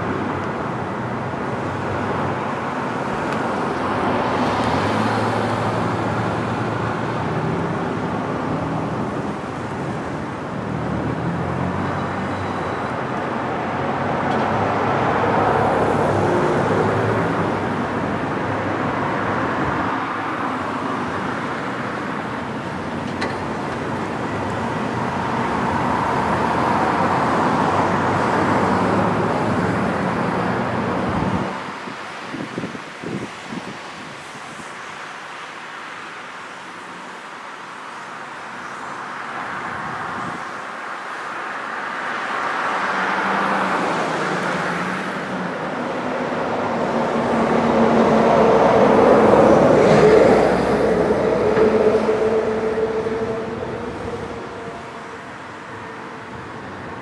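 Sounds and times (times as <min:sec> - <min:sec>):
road traffic: 0:00.0 - 0:57.0
freight train rolling over bridge: 0:43.2 - 0:57.0.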